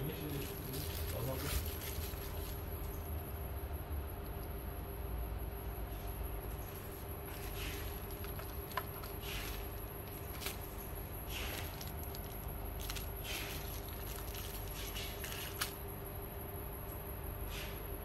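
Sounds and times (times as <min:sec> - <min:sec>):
steady hum: 0:00.0 - 0:18.0
bubble wrap rustling and crinkling: 0:00.2 - 0:03.1, 0:06.6 - 0:15.9.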